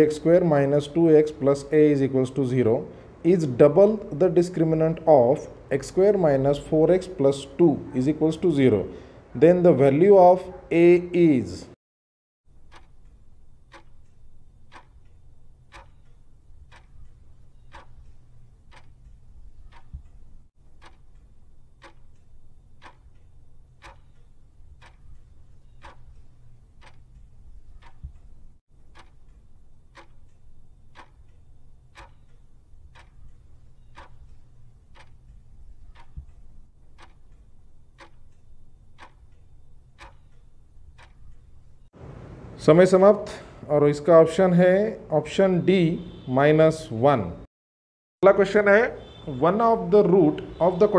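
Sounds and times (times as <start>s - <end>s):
clock ticking: 0.0s - 8.5s, 12.5s - 42.0s.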